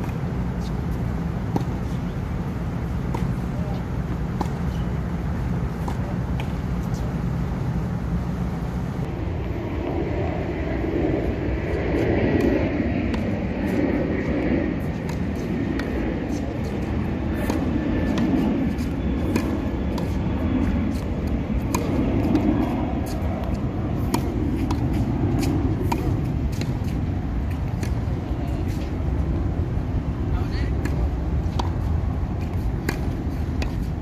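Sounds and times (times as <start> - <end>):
racquet strikes and ball bounces: 0.0 - 7.4, 13.1 - 28.9
steady low rumble: 0.0 - 34.0.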